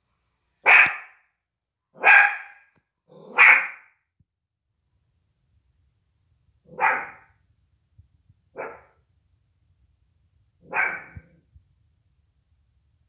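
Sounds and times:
small dog barking: 0.6s - 1.2s, 2.0s - 3.9s, 6.7s - 7.4s, 8.5s - 9.0s, 10.6s - 11.4s.

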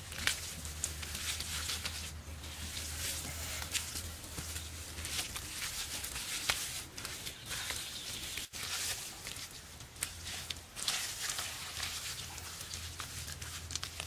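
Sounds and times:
steady outdoor hiss: 0.0s - 14.0s.

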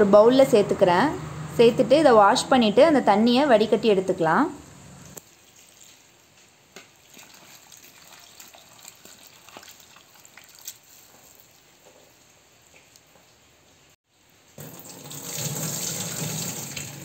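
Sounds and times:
tap water running into bowl: 14.6s - 17.0s.

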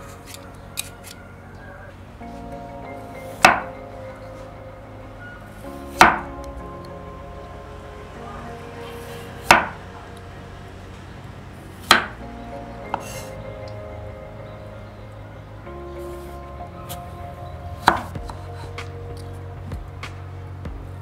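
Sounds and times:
background music: 0.0s - 21.0s.

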